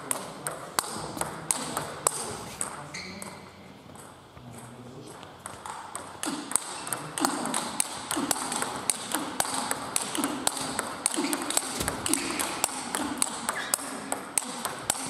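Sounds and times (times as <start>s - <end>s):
table tennis ball clicking: 5.4s - 15.0s.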